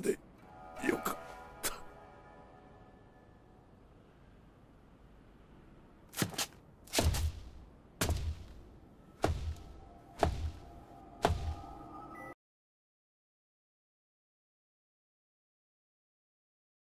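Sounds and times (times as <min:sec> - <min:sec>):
heavy booming thuds: 0:07.0 - 0:11.7
faint ringing tones: 0:08.8 - 0:12.4.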